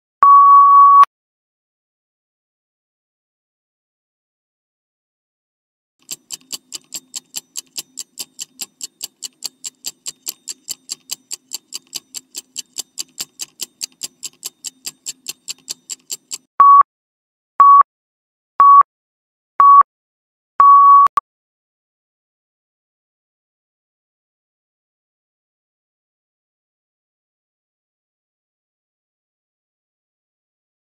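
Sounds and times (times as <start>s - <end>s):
loud beeps: 0.2s - 1.1s, 16.6s - 16.8s, 17.6s - 17.8s, 18.6s - 18.8s, 19.6s - 19.8s, 20.6s - 21.1s
fast clock ticking: 6.0s - 16.5s.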